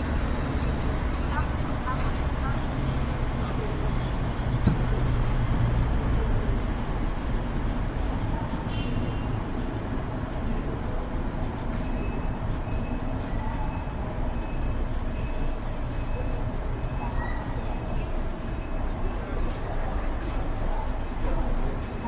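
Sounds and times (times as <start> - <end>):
road and traffic noise: 0.0 - 22.0.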